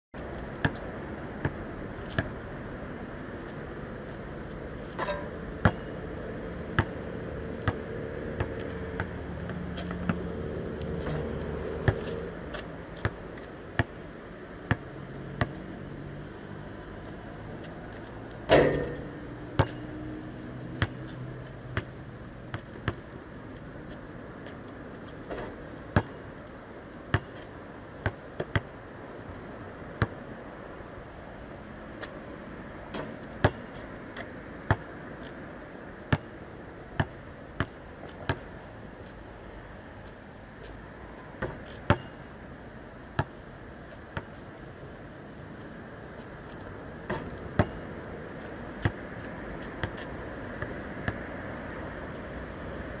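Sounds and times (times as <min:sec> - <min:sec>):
basketball bouncing on asphalt: 0:00.2 - 0:02.4, 0:05.0 - 0:06.0, 0:06.7 - 0:14.0, 0:14.6 - 0:15.6, 0:18.4 - 0:23.1, 0:23.9 - 0:26.3, 0:27.0 - 0:28.7, 0:30.0 - 0:30.2, 0:32.9 - 0:35.3, 0:36.1 - 0:38.6, 0:41.4 - 0:42.3, 0:43.2 - 0:43.5, 0:44.2 - 0:44.5, 0:45.6 - 0:51.4
ball banging on basketball hoop: 0:18.5 - 0:19.8.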